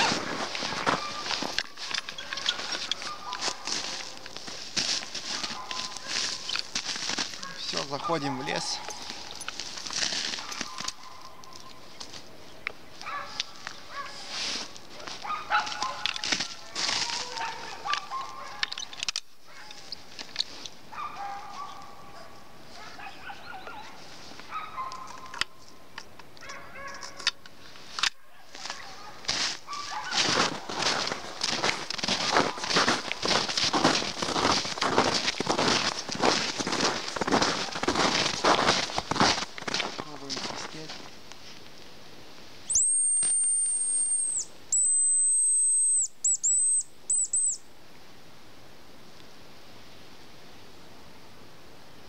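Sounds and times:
bird calls: 0.0 - 4.2, 10.4 - 12.6, 42.7 - 47.6
high decoy whistles: 42.7 - 47.6.

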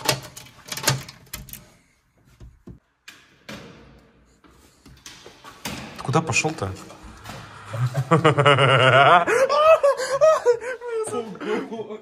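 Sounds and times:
door opening clicks and knocks: 0.0 - 1.7
door handling sounds: 0.0 - 3.9.

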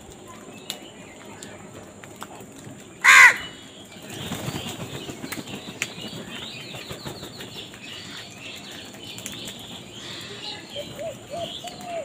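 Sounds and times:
crow cawing harshly: 3.0 - 3.5
wings flapping: 4.0 - 12.0.

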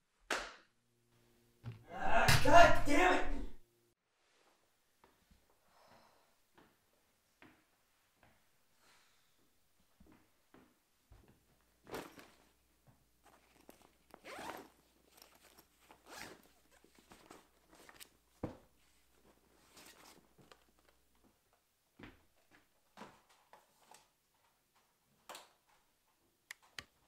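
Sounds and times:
backpack zipper rasping: 13.3 - 17.1.

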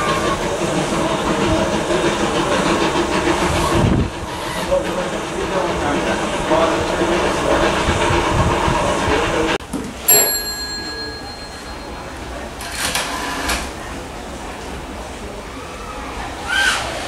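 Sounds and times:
steam locomotive pulling away: 0.0 - 17.0
voices: 8.7 - 12.8
ringing bell stroke: 10.1 - 12.5.

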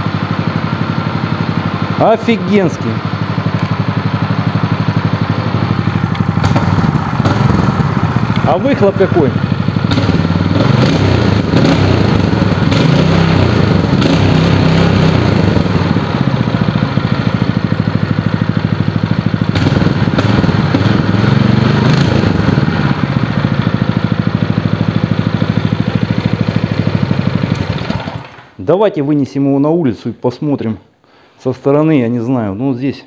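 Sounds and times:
engine running steadily: 0.0 - 28.4.

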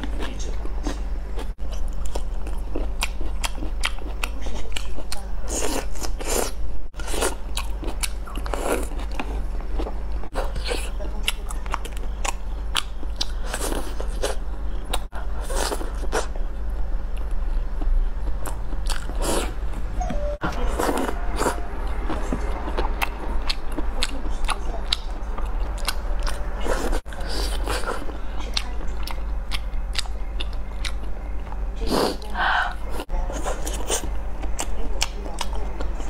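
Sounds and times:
chewing and biting food: 0.0 - 19.5, 20.6 - 31.6
low hum: 6.6 - 33.3.

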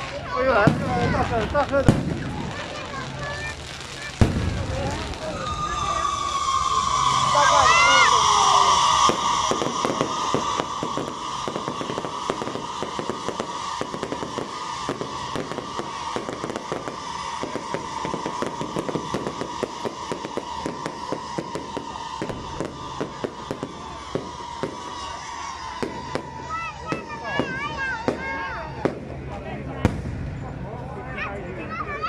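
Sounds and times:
fireworks crackling and banging: 0.0 - 32.0
steady high tone: 4.4 - 28.8.

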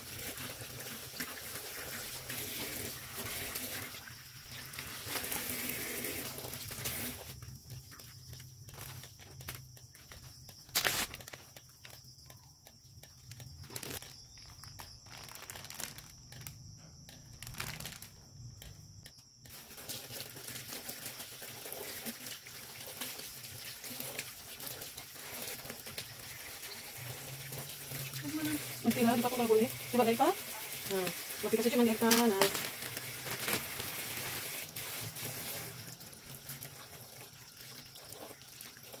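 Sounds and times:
running water hiss: 0.0 - 11.4, 19.5 - 39.0
crinkles and scrapes of cleaning fish: 4.6 - 18.8, 28.2 - 35.9
loud sharp crackle: 10.6 - 11.5, 13.6 - 16.6, 17.2 - 18.2.

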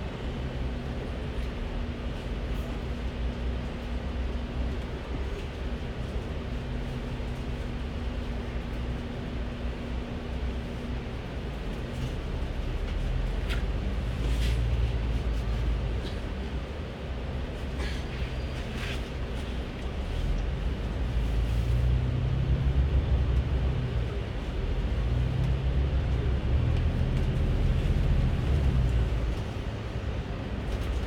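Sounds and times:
bus engine humming: 0.0 - 31.0.

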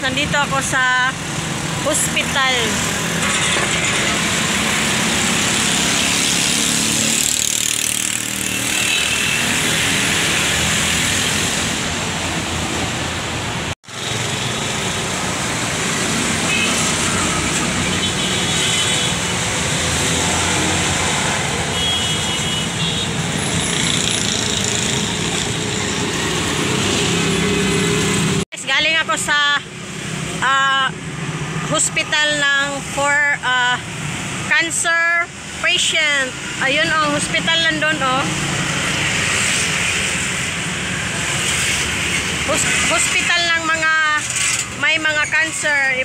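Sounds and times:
busy road traffic: 0.0 - 46.0.

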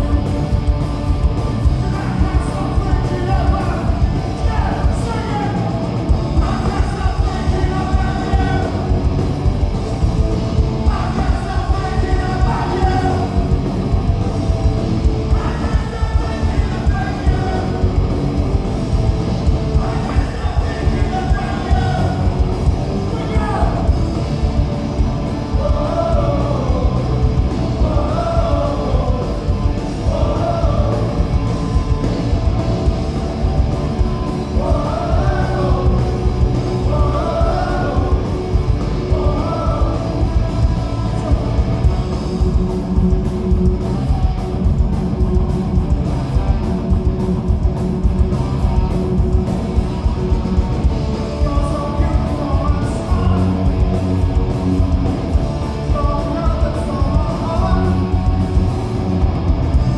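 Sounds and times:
distorted electric guitars: 0.0 - 59.9
driving drum beat: 0.0 - 59.9
person singing: 25.5 - 31.6, 34.4 - 41.9, 51.3 - 54.0, 55.7 - 58.7.

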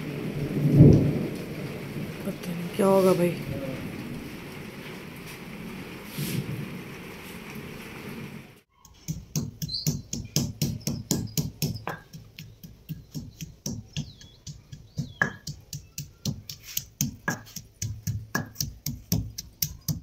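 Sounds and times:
pestle pounding in stone mortar: 8.9 - 20.0.

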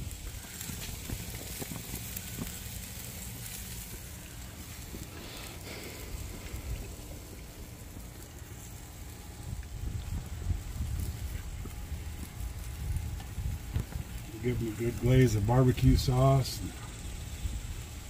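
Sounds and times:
meat sizzling on a grill: 0.0 - 18.0
wind rumble on microphone: 6.1 - 18.0.

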